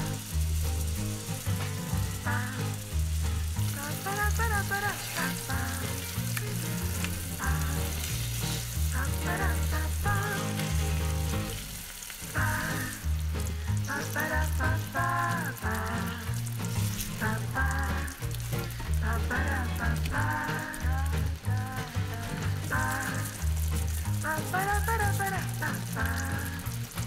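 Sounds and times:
tomato slices sizzling in oil: 0:00.0 - 0:27.0
background music with pulsing bass: 0:12.4 - 0:27.0.

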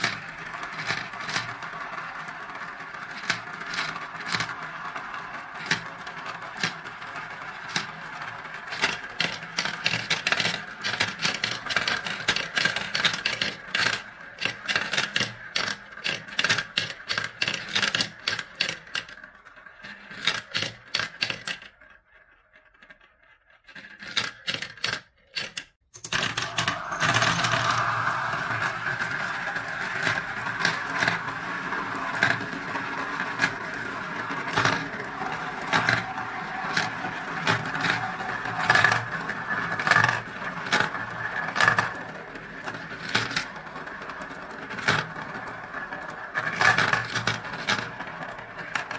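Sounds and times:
marbles clicking on ramps: 0:00.0 - 0:48.9
marbles rolling in plastic run: 0:00.0 - 0:48.9
marbles poured into funnel: 0:26.1 - 0:48.8.

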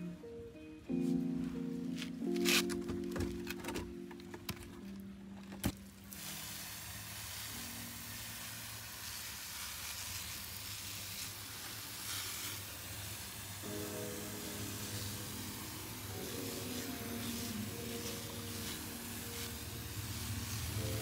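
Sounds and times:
hiss of fine water spray: 0:06.1 - 0:21.0.

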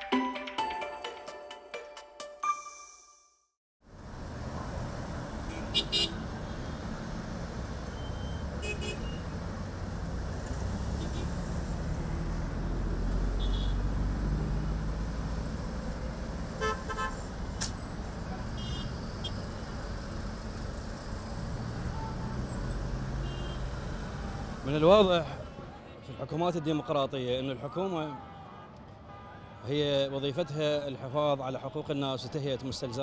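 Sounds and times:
traffic rumble: 0:03.9 - 0:26.0
car horn toots: 0:08.2 - 0:09.2, 0:13.4 - 0:13.8, 0:16.6 - 0:17.2, 0:18.6 - 0:19.4.

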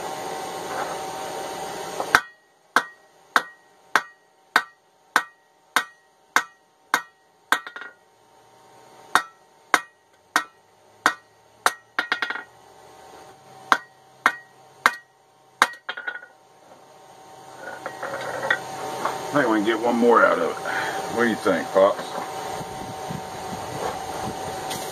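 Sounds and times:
hammer striking steel on anvil: 0:02.1 - 0:08.0, 0:09.1 - 0:12.5, 0:13.7 - 0:16.3.

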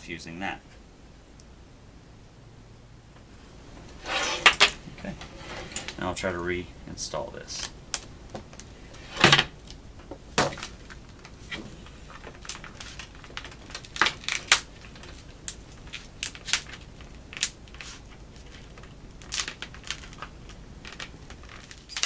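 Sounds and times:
plastic ring clicking and crackling: 0:12.1 - 0:22.0.

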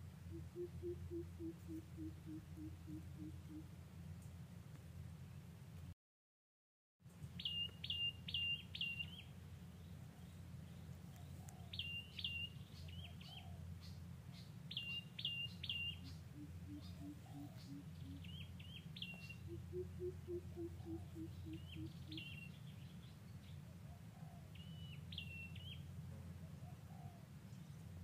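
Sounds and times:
songbird chirping: 0:00.0 - 0:04.4, 0:07.1 - 0:28.0
low background hum: 0:00.0 - 0:05.9, 0:07.1 - 0:28.0
low piping bird notes: 0:00.2 - 0:03.7, 0:14.7 - 0:22.6.

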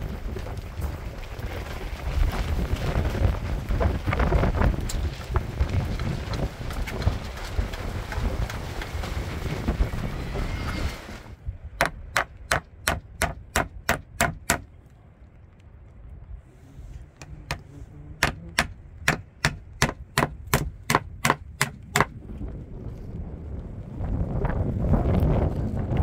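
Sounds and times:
sharp knocks: 0:11.8 - 0:14.7, 0:17.2 - 0:22.1.

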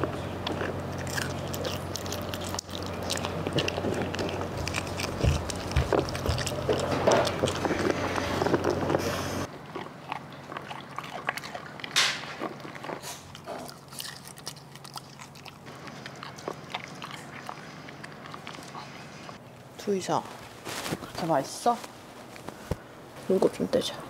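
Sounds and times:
dogs chewing and crunching food: 0:00.0 - 0:24.0
food and teeth clicking on bowl: 0:00.5 - 0:08.9.

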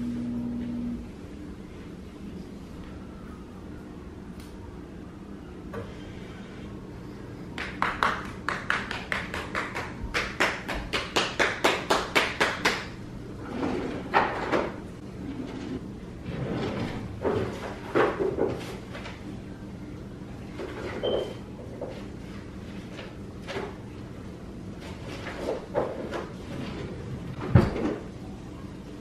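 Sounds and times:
kitchen drawer knocks and rattles: 0:27.4 - 0:28.0.

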